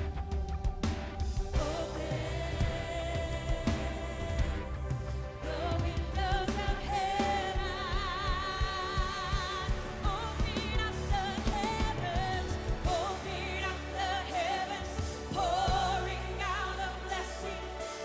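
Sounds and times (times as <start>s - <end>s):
band playing gospel music: 0.0s - 18.0s
women singing with vibrato: 1.5s - 18.0s.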